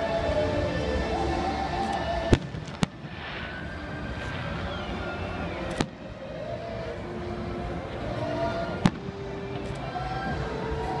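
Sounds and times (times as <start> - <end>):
falling firework whistle: 1.5 - 6.7
firework crackling: 1.8 - 10.9
firework bangs: 2.3 - 6.2.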